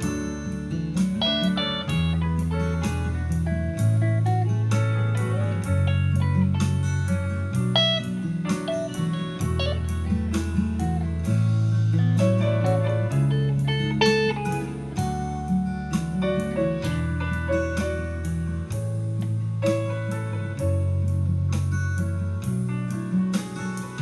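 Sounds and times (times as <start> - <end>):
electric guitar solo: 0.0 - 17.6
steady beat: 0.0 - 20.8
bass line: 0.0 - 24.0.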